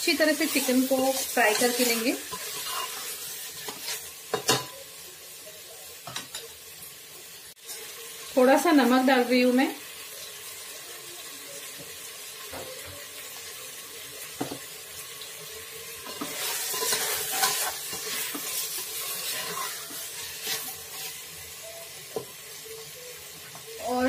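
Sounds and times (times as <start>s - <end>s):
chicken sizzling in a pot: 0.0s - 24.0s
spatula stirring and scraping: 0.3s - 4.7s, 16.0s - 21.4s.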